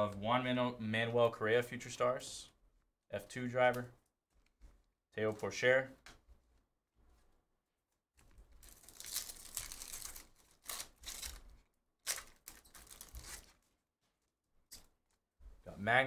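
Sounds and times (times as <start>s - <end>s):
foil wrapper tearing and crinkling: 8.6s - 13.6s.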